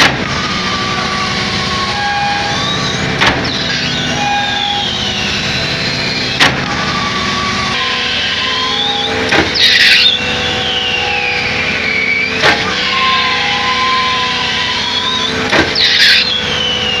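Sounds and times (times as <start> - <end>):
high pump whine: 0.0 - 17.0
pumping cylinders knocking: 9.3 - 9.6, 15.4 - 16.0.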